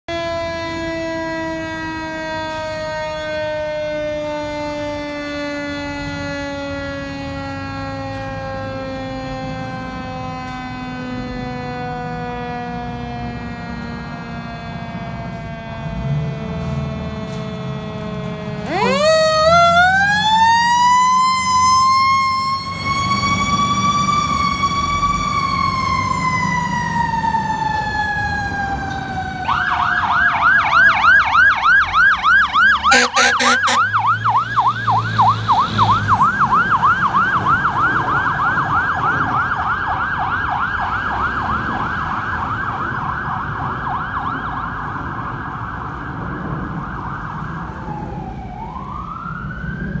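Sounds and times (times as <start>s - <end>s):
fire truck siren wailing: 0.0s - 50.0s
fast siren yelp: 0.1s - 50.0s
horn blast: 32.9s - 34.0s.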